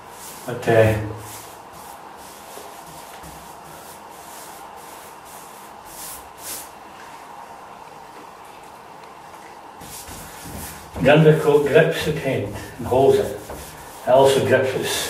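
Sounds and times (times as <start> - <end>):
paintbrush swishing on wood: 0.0 - 6.8, 9.8 - 15.0.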